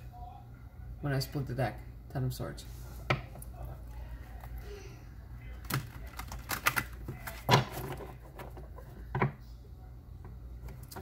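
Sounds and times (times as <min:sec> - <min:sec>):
cards being shuffled on wooden table: 0:05.6 - 0:09.3.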